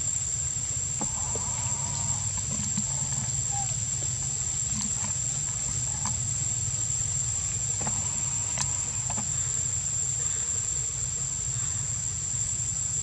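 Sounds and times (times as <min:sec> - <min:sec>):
insects droning: 0:00.0 - 0:13.0
faint ticks: 0:07.7 - 0:09.5.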